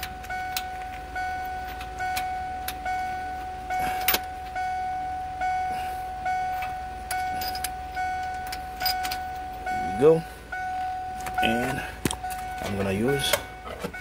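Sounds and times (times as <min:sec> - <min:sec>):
metal socket clinking on engine: 0:00.0 - 0:02.8, 0:04.0 - 0:04.6, 0:06.5 - 0:09.6
dashboard warning chime: 0:00.0 - 0:14.0.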